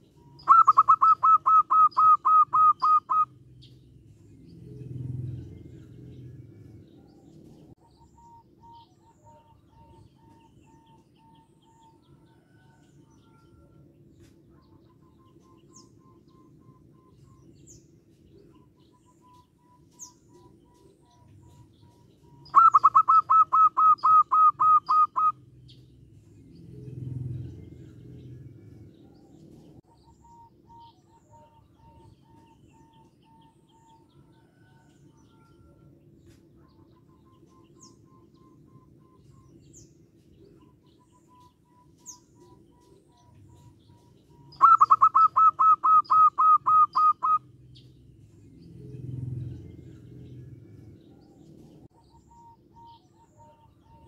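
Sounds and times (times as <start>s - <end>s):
dove cooing: 0.0s - 3.3s, 6.8s - 13.8s, 19.7s - 25.4s, 27.1s - 35.9s, 42.4s - 47.4s.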